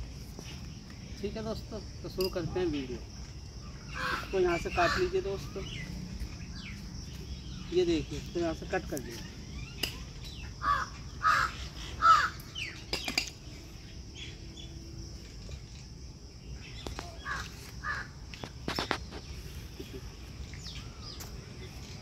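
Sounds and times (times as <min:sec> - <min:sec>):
high insect drone: 0:00.0 - 0:22.0
crow cawing: 0:03.9 - 0:05.3, 0:10.6 - 0:12.6, 0:17.2 - 0:18.2.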